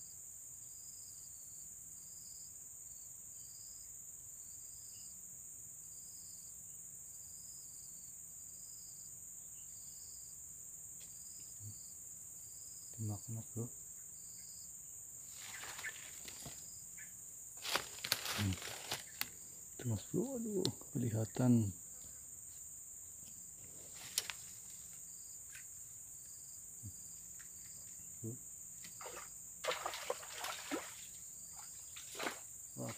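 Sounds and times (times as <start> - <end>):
insects shrilling: 15.2 - 22.8, 23.4 - 32.9.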